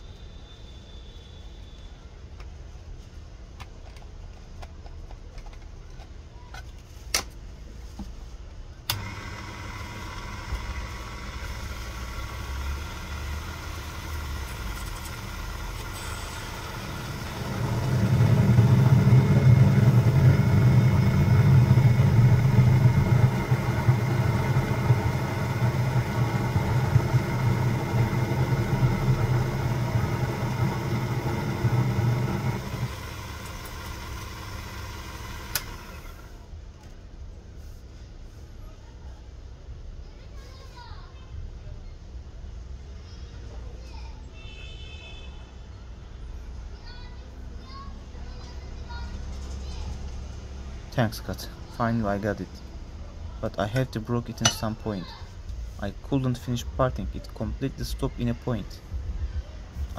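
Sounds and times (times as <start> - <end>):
lathe machine hum: 8.9 - 36.4
click: 35.5 - 35.8.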